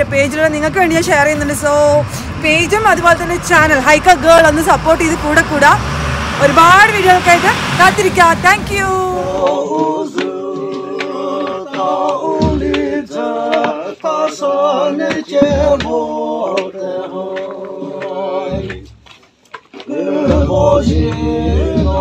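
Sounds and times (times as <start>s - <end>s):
men singing unaccompanied: 8.9s - 19.0s, 19.7s - 22.0s.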